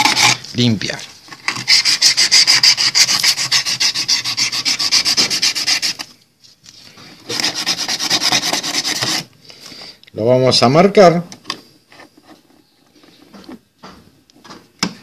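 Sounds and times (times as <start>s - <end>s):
abrasive cloth scraping metal tube: 0.0s - 0.6s.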